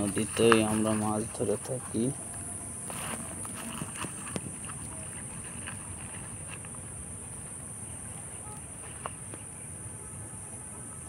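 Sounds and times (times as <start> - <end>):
insects droning: 0.0 - 11.0.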